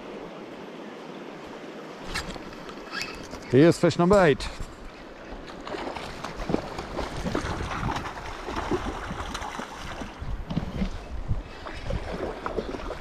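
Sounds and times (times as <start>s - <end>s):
river water flowing: 0.0s - 13.0s
wind buffeting microphone: 4.3s - 13.0s.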